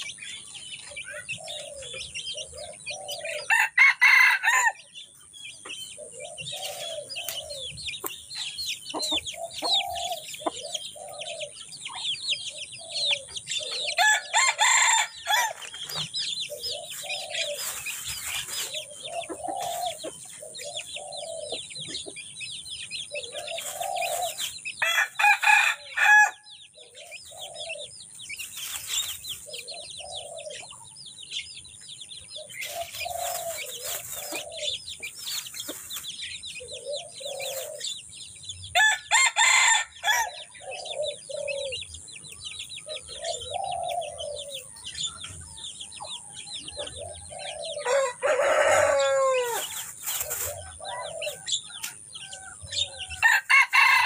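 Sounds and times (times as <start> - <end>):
small birds chirping: 0.0 - 54.0
rooster crowing: 3.4 - 4.8, 14.0 - 15.6, 24.8 - 26.5, 38.8 - 40.4, 47.7 - 49.7, 52.8 - 54.0.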